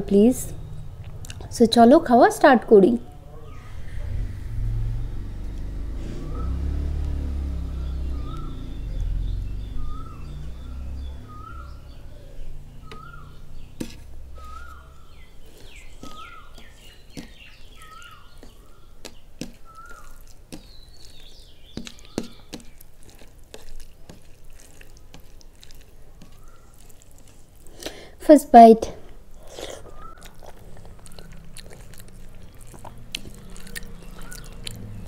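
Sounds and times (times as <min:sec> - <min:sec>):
fingers squishing wet rice: 0:05.2 - 0:11.9, 0:12.7 - 0:28.0, 0:29.3 - 0:35.0.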